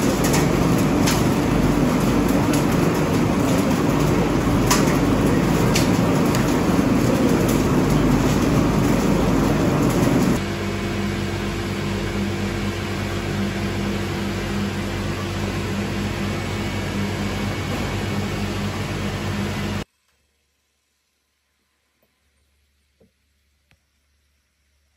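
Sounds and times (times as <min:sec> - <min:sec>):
mill machinery clattering: 0:00.0 - 0:10.4
machine hum with low tone: 0:00.0 - 0:24.9.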